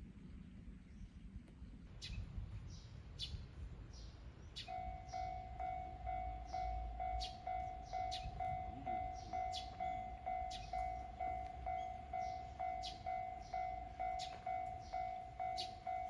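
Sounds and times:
birds chirping: 0:00.8 - 0:16.0
level crossing alarm dinging: 0:04.7 - 0:16.0.

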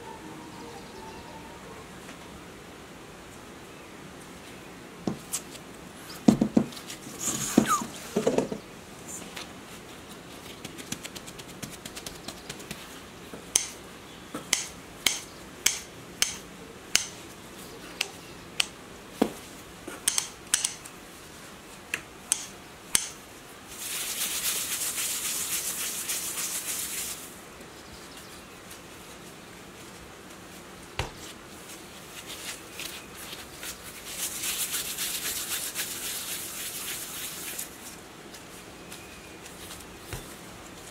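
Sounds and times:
hands rolling dough: 0:10.1 - 0:13.0, 0:30.3 - 0:40.9.

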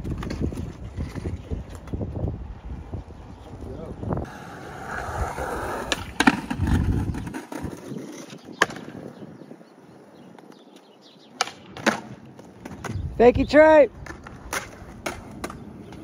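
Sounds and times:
skateboard wheels rolling on concrete: 0:00.0 - 0:16.0
skateboard clacks: 0:04.2 - 0:09.1, 0:10.3 - 0:13.0, 0:14.0 - 0:16.0.

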